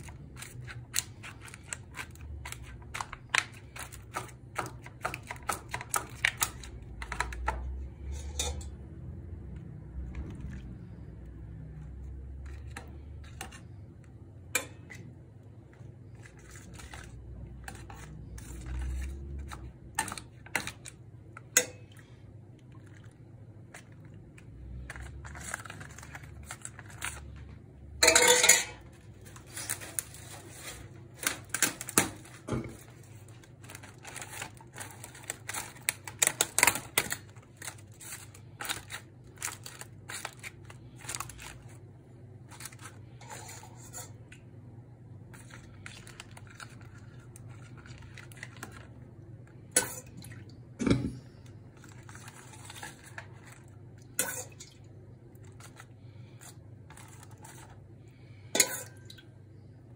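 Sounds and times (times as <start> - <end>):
metal ladle clinking on tray: 28.0 - 28.8.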